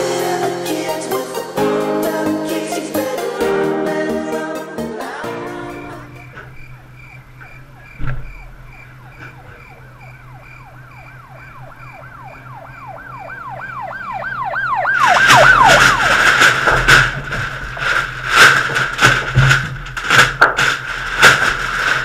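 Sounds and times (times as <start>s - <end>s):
siren wailing: 5.8s - 16.7s.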